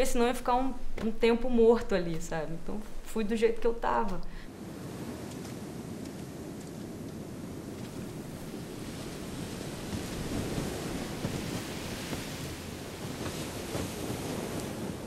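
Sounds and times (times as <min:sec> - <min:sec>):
ocean surf breaking: 0:04.0 - 0:15.0
wind buffeting microphone: 0:04.7 - 0:15.0.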